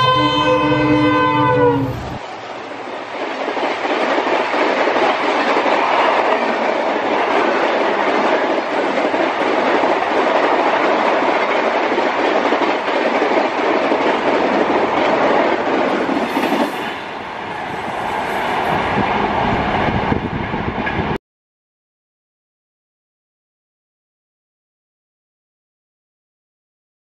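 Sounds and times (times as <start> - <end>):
low train rumble: 0.0 - 21.2
train coaches rushing past: 0.0 - 21.2
clickety-clack of rail joints: 1.9 - 21.2.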